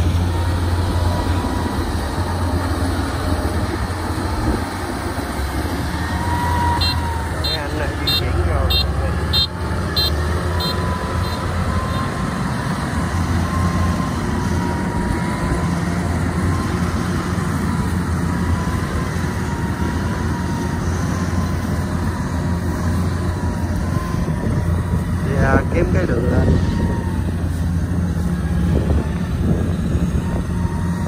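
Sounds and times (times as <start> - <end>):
carrier engine running: 0.0 - 31.0
combine harvester running: 0.0 - 31.0.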